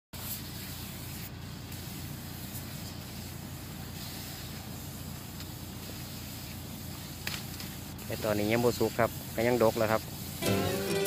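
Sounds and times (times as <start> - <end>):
spray gun hissing: 0.2 - 11.0
motorised sprayer humming: 10.1 - 11.0.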